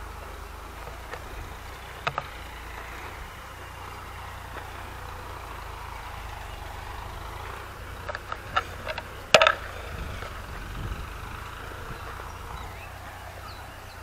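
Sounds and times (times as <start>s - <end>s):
distant tractor engine running: 0.0s - 14.0s
sharp clicks and knocks: 0.7s - 3.1s, 7.2s - 12.6s.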